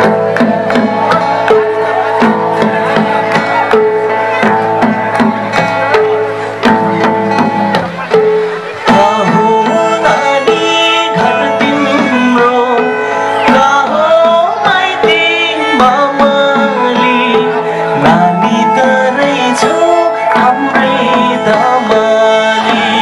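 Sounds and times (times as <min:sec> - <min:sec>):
bowed string instrument: 0:00.0 - 0:23.0
hand drum beating: 0:00.0 - 0:23.0
strummed acoustic guitar: 0:00.0 - 0:23.0
person singing: 0:08.6 - 0:23.0.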